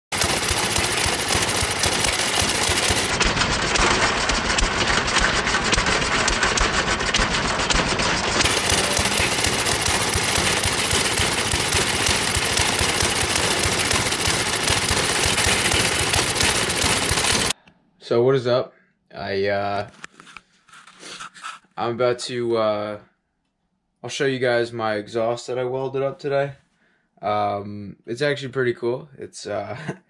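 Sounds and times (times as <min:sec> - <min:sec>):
small engine rapid crackle: 0:00.1 - 0:17.6.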